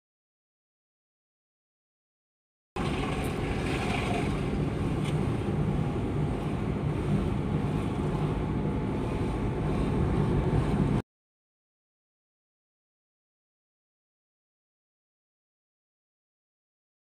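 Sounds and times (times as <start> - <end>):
car engine and tyres rumbling: 2.8 - 11.0.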